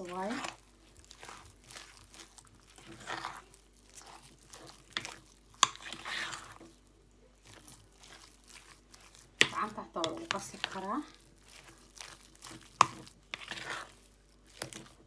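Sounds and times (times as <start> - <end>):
hand squeezing dough: 0.0 - 15.0.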